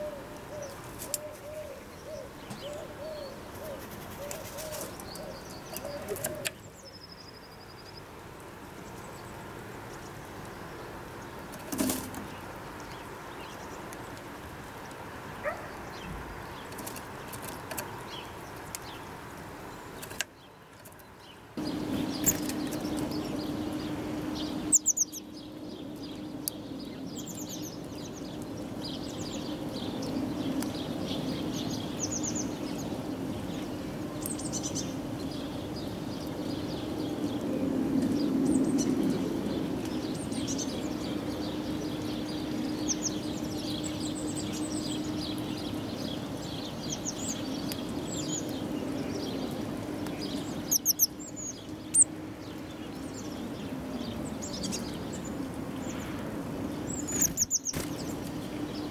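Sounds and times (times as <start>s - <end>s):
small birds chirping: 0.0s - 58.9s
wing flutters: 3.6s - 6.6s, 57.0s - 58.4s
steady low hum: 21.6s - 58.9s.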